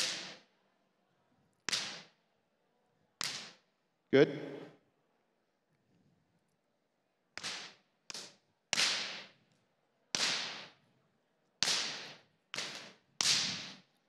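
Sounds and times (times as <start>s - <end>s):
light whip cracks: 0.0s - 0.4s, 1.7s - 2.1s, 7.4s - 9.3s, 10.2s - 10.8s, 11.6s - 13.9s.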